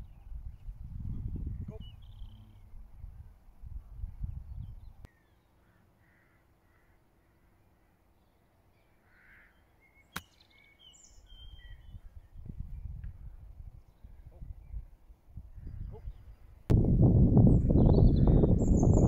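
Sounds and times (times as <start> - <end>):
wind rumble on microphone: 0.0 - 5.1, 11.3 - 19.0
faint bird calls: 5.1 - 12.2.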